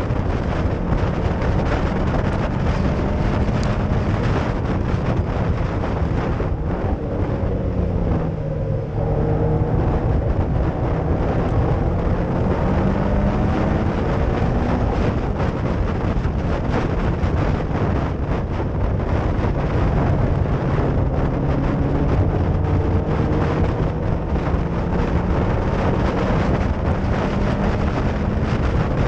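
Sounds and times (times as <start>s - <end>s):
car engine at racing speed: 0.0s - 29.0s
wind noise: 0.0s - 29.0s.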